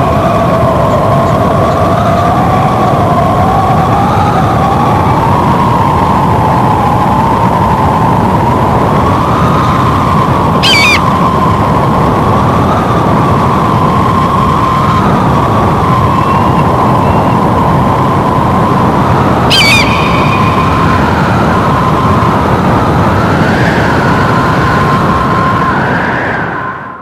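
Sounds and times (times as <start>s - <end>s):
wind howling: 0.0s - 27.0s
eagle calls: 10.6s - 11.1s, 19.5s - 20.6s.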